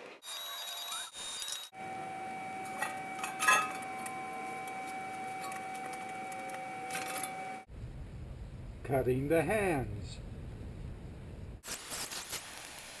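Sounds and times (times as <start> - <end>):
steady high ringing tone: 1.4 - 7.7
metal parts clinking on concrete: 2.8 - 3.9, 5.4 - 7.4
sharp metal clank: 2.8 - 3.9.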